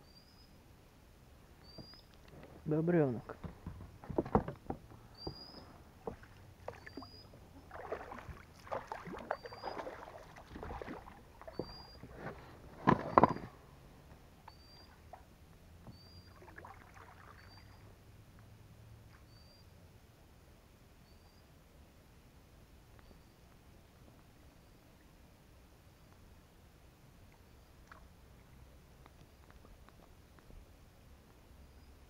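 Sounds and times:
oars knocking against boat: 0:03.3 - 0:07.1, 0:12.8 - 0:13.5
oar blades swishing in water: 0:06.0 - 0:13.4.

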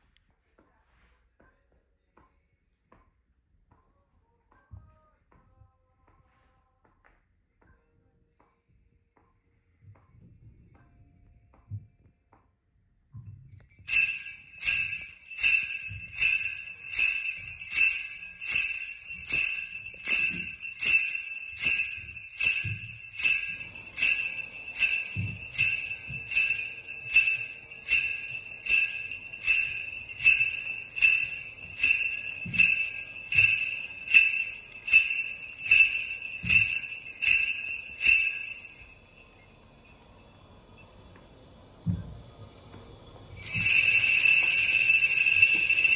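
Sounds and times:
sleigh bells jingling: 0:13.6 - 0:40.2, 0:43.4 - 0:45.9.

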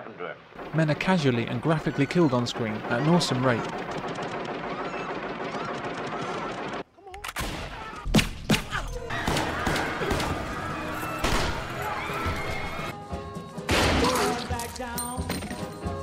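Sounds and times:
tense film music: 0:00.6 - 0:14.7
automatic gunfire: 0:02.1 - 0:06.8.

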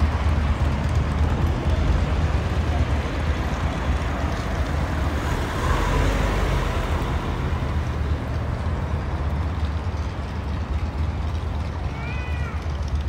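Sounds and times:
cars driving past: 0:00.0 - 0:11.7.

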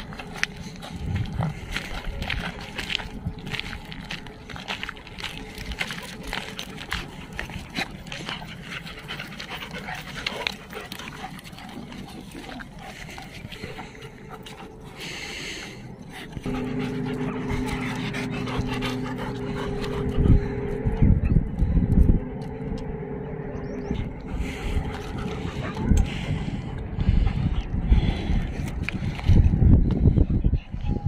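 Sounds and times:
paws scuffing on gravel: 0:00.0 - 0:20.6
dogs panting: 0:00.0 - 0:31.0
low steady hum: 0:00.0 - 0:31.0.

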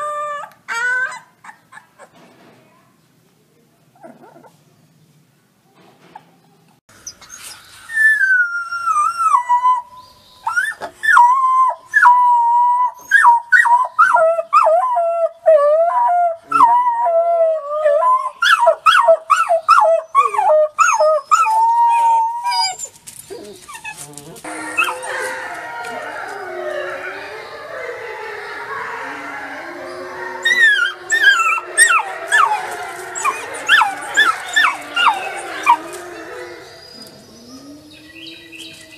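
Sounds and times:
wolf pups howling: 0:07.9 - 0:38.9.

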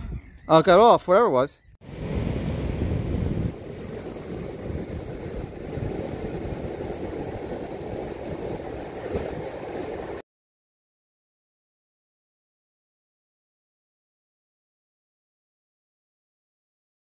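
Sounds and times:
ocean surf breaking on sand: 0:01.8 - 0:10.2
wind buffeting microphone: 0:01.8 - 0:10.2.

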